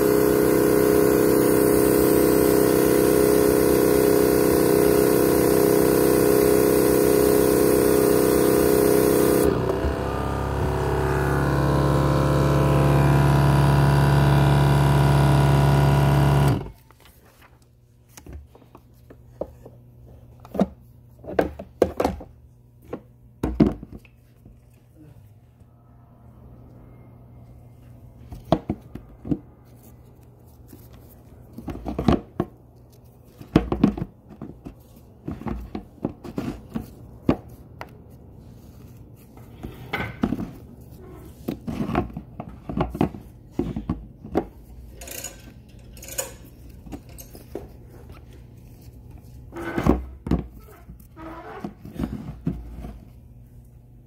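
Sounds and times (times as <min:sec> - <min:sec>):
steady low hum: 0:00.0 - 0:17.9
handling knocks and scrapes: 0:28.2 - 0:45.8, 0:46.4 - 0:53.6.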